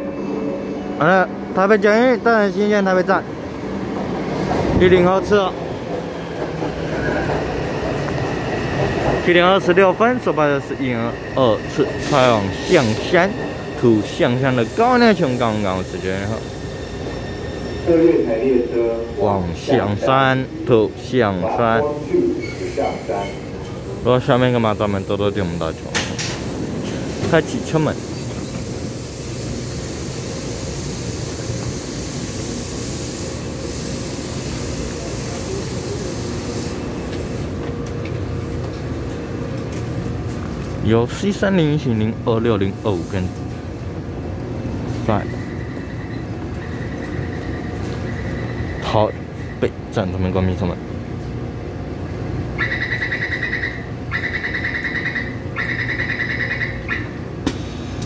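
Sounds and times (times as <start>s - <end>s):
metro train hum: 0.0s - 58.0s
high hiss: 14.0s - 17.0s, 27.1s - 37.5s.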